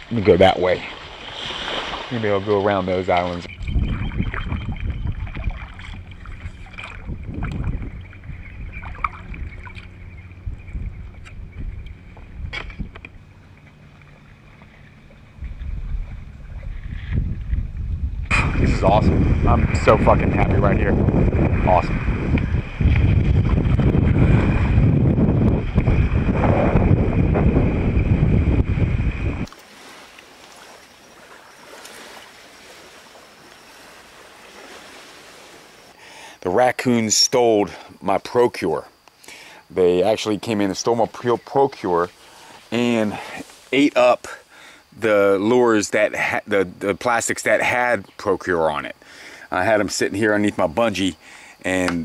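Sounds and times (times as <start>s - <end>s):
water lapping against hull: 0.0s - 36.4s, 40.8s - 45.0s
wind buffeting microphone: 2.8s - 29.5s.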